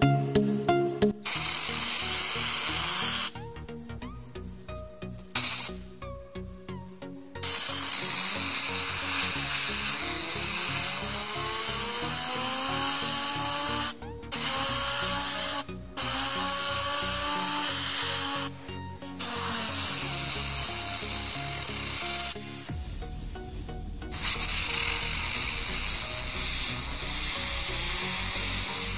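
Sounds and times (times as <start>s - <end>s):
fidget spinner whine: 1.2s - 5.8s, 7.4s - 18.5s, 24.2s - 28.9s
compressed air hissing: 1.2s - 22.8s, 24.1s - 28.9s.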